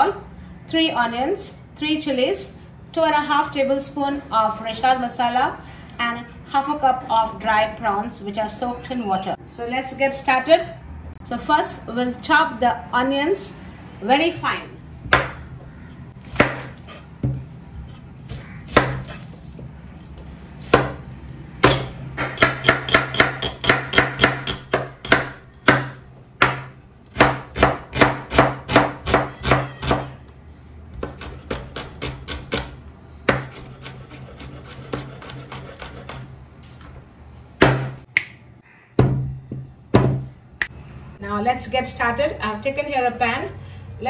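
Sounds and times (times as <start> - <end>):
knife chopping on wooden board: 15.1 - 17.5, 21.6 - 30.1, 33.3 - 36.2.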